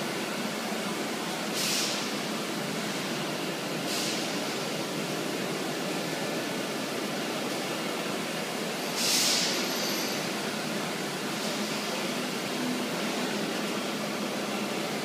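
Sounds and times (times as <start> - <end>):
loud hiss: 1.4 - 3.0, 3.7 - 5.2, 8.8 - 12.3.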